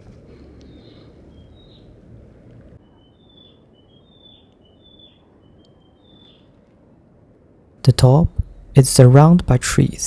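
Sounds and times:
low steady background noise: 0.0 - 10.0
small birds whistling: 0.6 - 2.0, 2.8 - 6.6.

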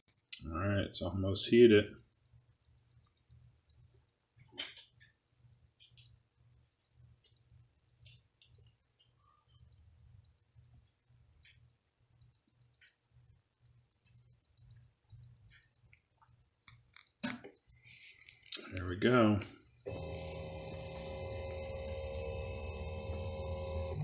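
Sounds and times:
weak low hum: 19.8 - 24.0
printer clicking and ticking: 19.9 - 24.0.

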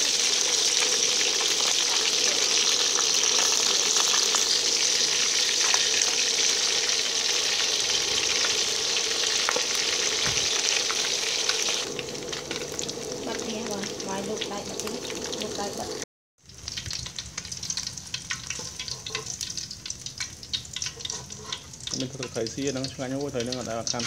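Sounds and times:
fish sizzling in hot oil: 0.0 - 24.0
metal spatula scraping wok: 18.3 - 19.7, 20.7 - 23.0.

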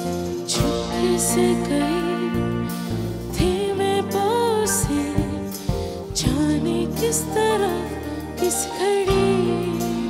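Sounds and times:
instrumental accompaniment: 0.0 - 10.0
boy singing into a microphone: 6.2 - 10.0.

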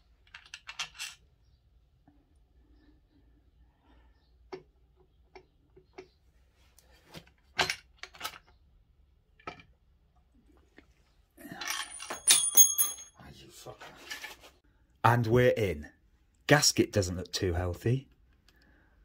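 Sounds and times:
metal knocks and clinks: 11.5 - 13.2.

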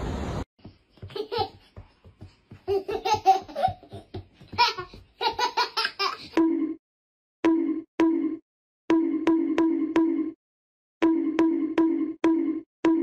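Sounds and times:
toddler laughing and giggling: 1.0 - 1.8, 2.5 - 6.4.

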